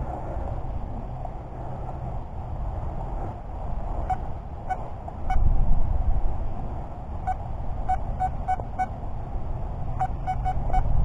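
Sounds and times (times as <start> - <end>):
low rumbling noise: 0.0 - 11.0
metal detector beeps: 7.3 - 8.9, 10.0 - 10.9.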